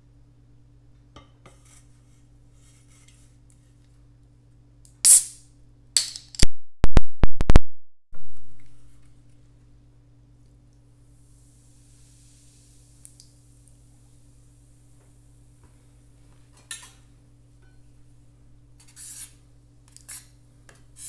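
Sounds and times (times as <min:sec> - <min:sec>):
can opening gas hiss: 0:04.9 - 0:05.4, 0:11.3 - 0:13.8.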